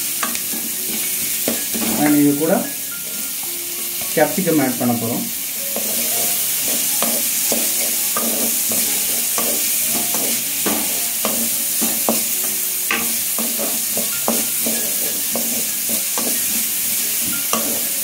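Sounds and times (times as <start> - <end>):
vegetables sizzling in hot oil: 0.0 - 18.0
wooden spatula scraping a pan: 5.7 - 12.3, 13.4 - 18.0.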